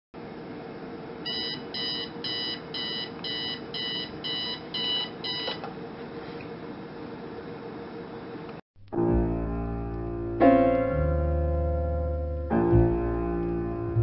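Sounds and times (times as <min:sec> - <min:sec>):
alarm clock beeping: 0:01.3 - 0:05.6.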